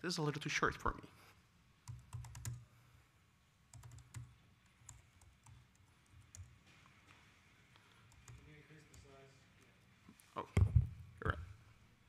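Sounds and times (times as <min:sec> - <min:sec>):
faint keyboard typing: 0:01.8 - 0:02.7, 0:03.7 - 0:09.7.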